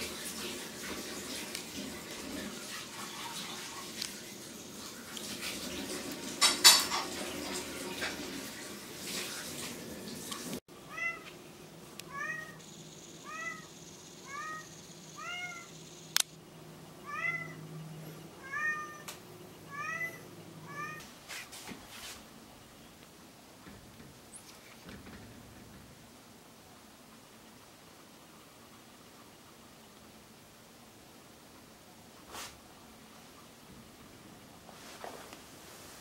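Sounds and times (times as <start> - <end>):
cat meowing: 10.9 - 11.3, 12.1 - 12.6, 13.2 - 13.7, 14.3 - 15.7, 17.0 - 17.6, 18.4 - 21.1.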